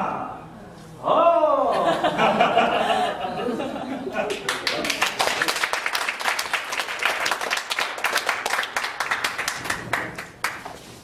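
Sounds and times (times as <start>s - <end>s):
people clapping: 4.1s - 11.0s.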